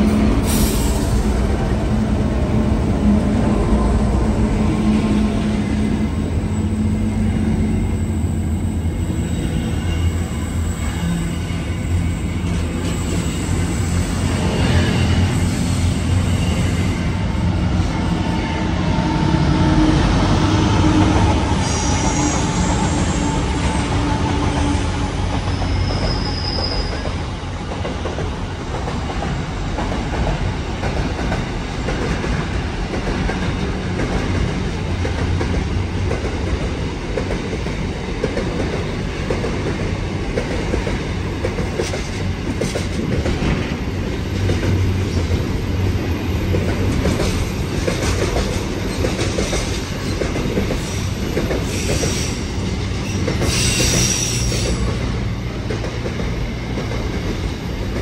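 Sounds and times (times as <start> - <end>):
train wheels rolling on rails: 0.0 - 58.0
thin wheel squeals: 25.6 - 27.0.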